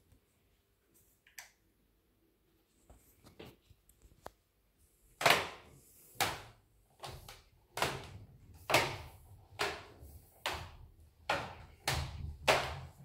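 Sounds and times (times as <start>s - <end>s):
footsteps on wooden stairs: 6.2s - 13.0s.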